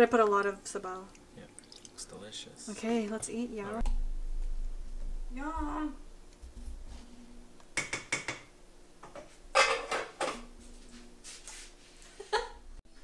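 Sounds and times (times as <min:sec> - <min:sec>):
dishes and cutlery clattering: 0:09.1 - 0:10.5.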